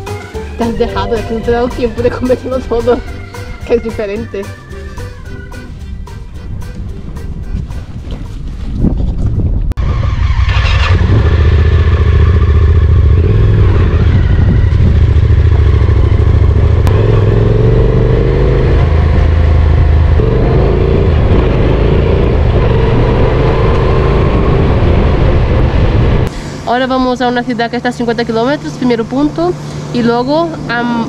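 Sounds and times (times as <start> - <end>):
motorcycle engine drone: 9.7 - 31.0.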